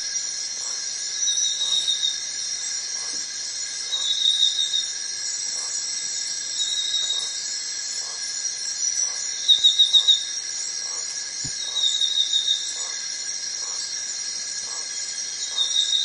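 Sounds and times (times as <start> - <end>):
insects buzzing trill: 0.0 - 16.0
louder pulsed insect trill: 0.0 - 16.0.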